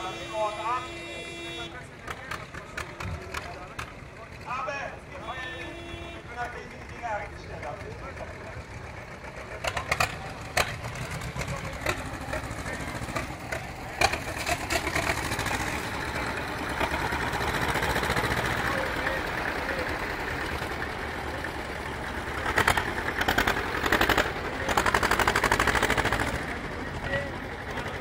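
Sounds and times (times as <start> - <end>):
diesel tractor engines running: 0.0 - 28.0.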